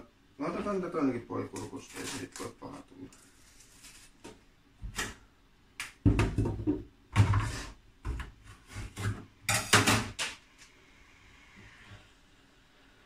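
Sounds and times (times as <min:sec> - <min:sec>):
kitchenware clattering: 0:09.0 - 0:10.4.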